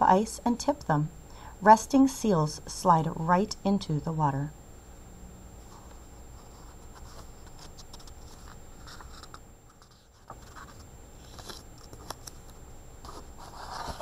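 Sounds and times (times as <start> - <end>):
paper pages rustling: 5.6 - 14.0
page turning: 5.8 - 14.0.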